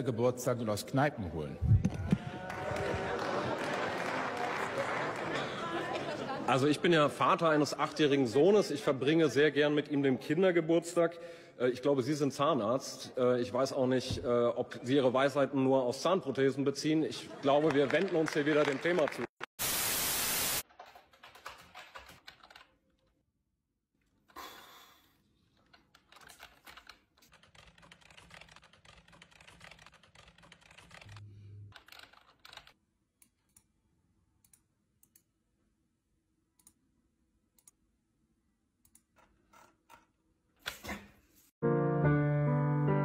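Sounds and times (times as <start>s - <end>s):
static hiss: 19.6s - 20.6s.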